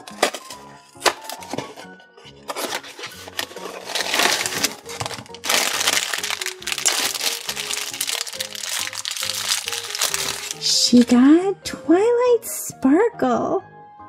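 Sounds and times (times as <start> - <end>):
background music: 0.0 - 14.0
foil bag crinkling and tearing: 2.4 - 11.1.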